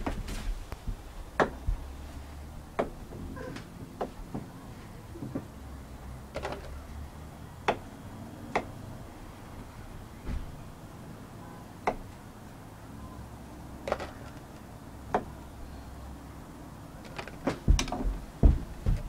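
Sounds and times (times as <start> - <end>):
heavy thumps: 0.0 - 4.6, 17.3 - 19.0
hands knocking on wooden railing: 17.6 - 19.0.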